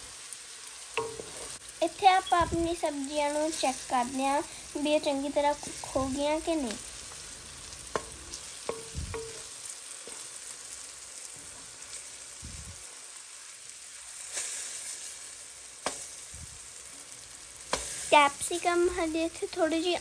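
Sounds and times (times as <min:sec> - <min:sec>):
vegetables sizzling in oil: 0:00.0 - 0:20.0
spatula knocking and scraping pan: 0:01.0 - 0:01.6, 0:07.8 - 0:09.5.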